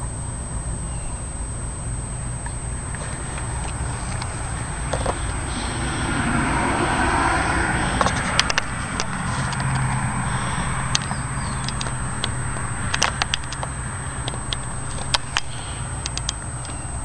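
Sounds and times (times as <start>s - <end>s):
car humming: 1.6s - 17.0s
sharp clicks: 7.9s - 16.9s.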